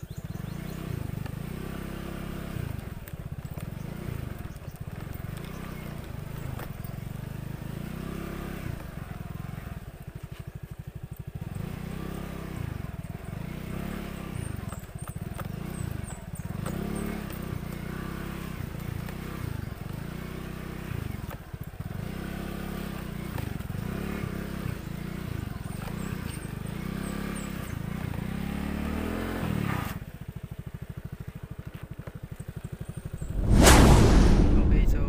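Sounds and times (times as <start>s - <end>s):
rattling from rough road: 2.3s - 11.6s, 12.8s - 22.0s.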